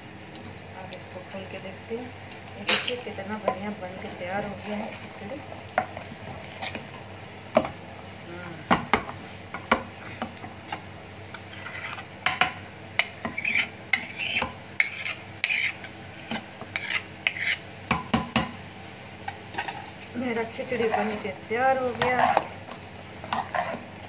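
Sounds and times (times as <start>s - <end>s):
ladle scraping pot: 11.4s - 12.4s, 13.0s - 17.6s, 20.7s - 23.9s.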